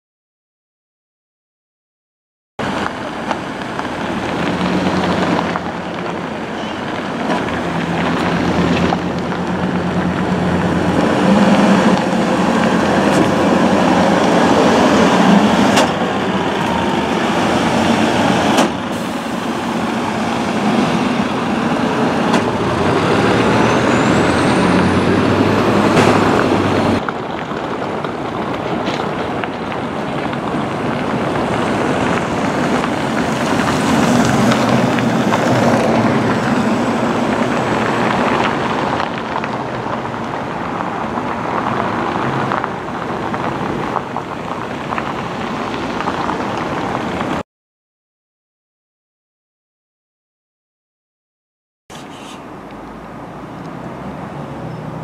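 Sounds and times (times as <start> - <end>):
bus engines humming: 2.6 - 47.4, 51.9 - 55.0
bus pulling away: 2.6 - 47.4, 51.9 - 55.0
buses driving past: 2.6 - 47.4, 51.9 - 55.0.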